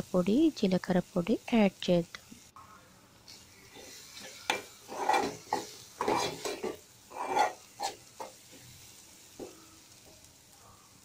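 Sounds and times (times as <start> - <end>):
spatula scraping a metal pot: 3.7 - 8.4.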